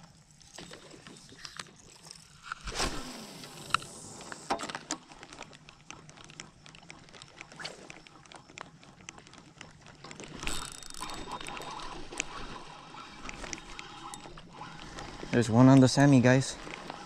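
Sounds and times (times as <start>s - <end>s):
fishing reel clicking: 10.1s - 17.0s.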